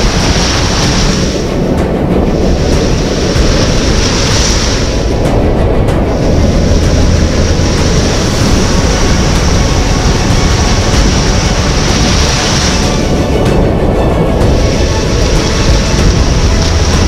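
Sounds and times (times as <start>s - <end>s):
surf breaking over rocks: 0.0s - 17.0s
wind rumbling on microphone: 0.0s - 17.0s.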